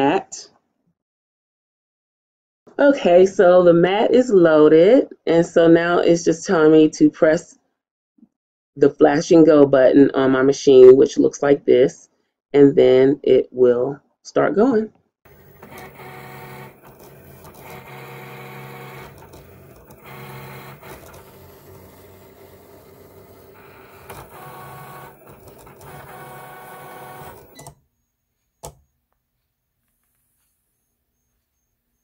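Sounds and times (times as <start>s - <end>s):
cutting machine motors whining: 15.3s - 27.8s.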